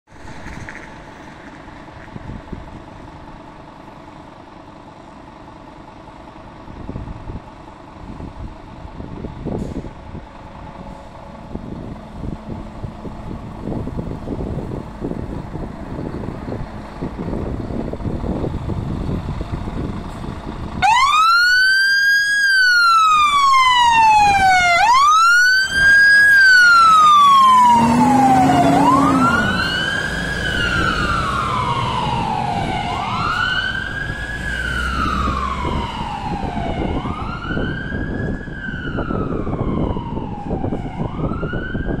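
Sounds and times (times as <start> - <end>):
fire engine running: 0.1 - 42.0
siren wailing: 20.8 - 42.0.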